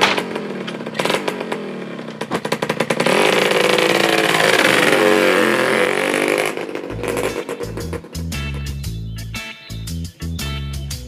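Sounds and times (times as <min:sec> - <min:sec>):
small motorcycle engine revving: 0:00.0 - 0:08.4.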